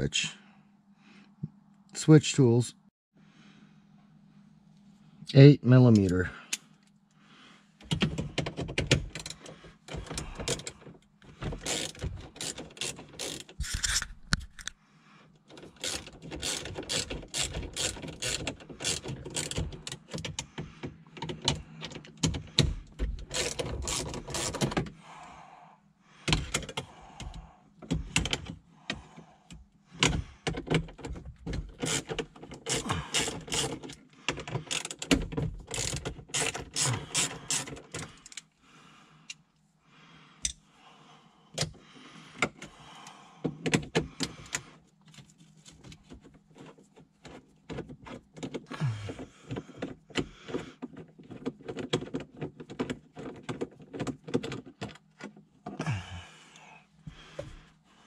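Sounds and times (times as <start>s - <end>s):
nut driver ratcheting clicks: 11.5s - 14.8s, 15.5s - 20.5s, 21.1s - 24.9s, 26.3s - 38.5s.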